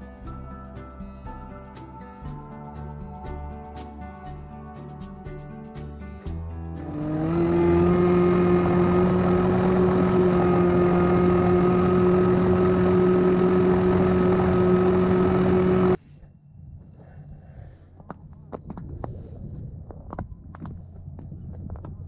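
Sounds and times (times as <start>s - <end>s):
motor running at high speed: 6.8s - 16.0s.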